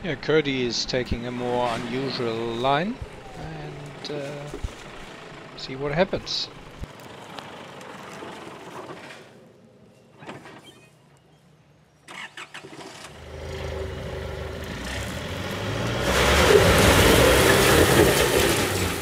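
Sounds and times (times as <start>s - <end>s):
engine revving under load: 0.5s - 9.4s, 12.1s - 19.0s.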